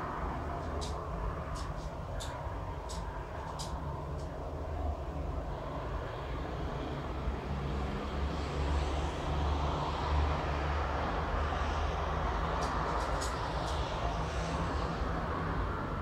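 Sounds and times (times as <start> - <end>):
road traffic rumble and hiss: 0.0 - 16.0.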